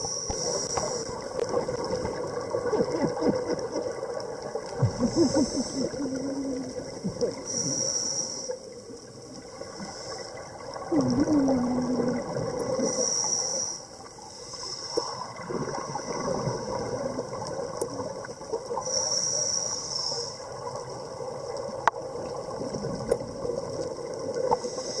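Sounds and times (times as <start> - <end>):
scuba regulator breathing hiss: 0.0 - 1.3, 4.9 - 6.2, 7.4 - 8.7, 9.6 - 10.5, 12.8 - 15.3, 18.7 - 20.7, 24.5 - 25.0
bubbling gurgle: 1.1 - 7.6, 10.4 - 13.0, 15.1 - 18.8, 20.5 - 24.7.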